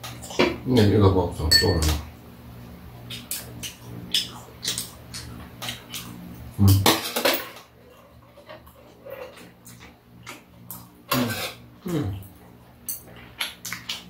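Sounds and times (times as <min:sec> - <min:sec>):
crisp chewing: 0:12.1 - 0:14.0.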